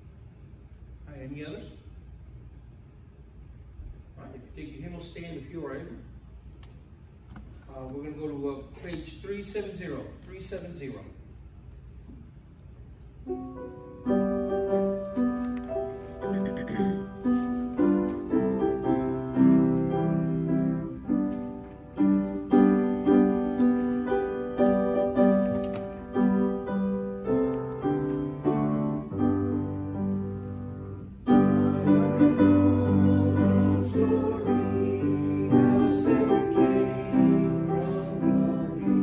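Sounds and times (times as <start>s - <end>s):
piano playing a hymn: 13.2s - 39.0s.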